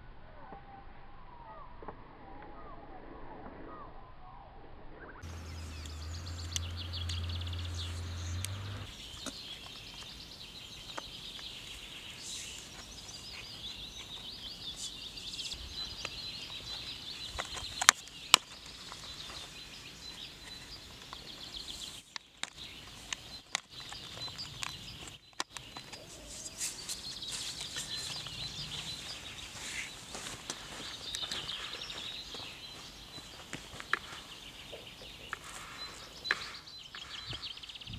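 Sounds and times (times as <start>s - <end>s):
low hum: 2.9s - 8.9s.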